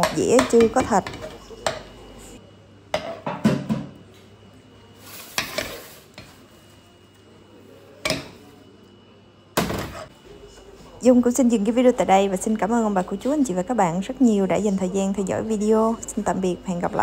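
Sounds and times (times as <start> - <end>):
kitchenware knocks: 3.0 - 4.0.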